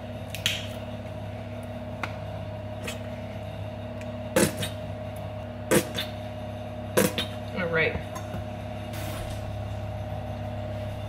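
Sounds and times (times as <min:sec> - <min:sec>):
low appliance hum: 0:00.0 - 0:11.0.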